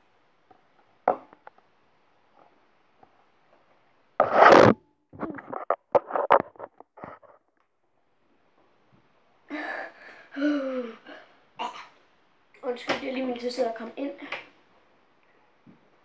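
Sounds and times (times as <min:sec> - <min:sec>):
loud rubbing scrape: 0:04.2 - 0:04.8.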